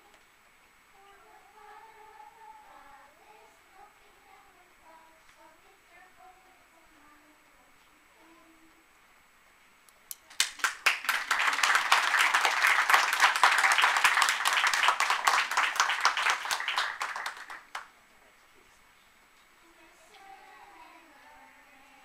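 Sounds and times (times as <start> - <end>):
audience applauding: 10.3 - 17.9.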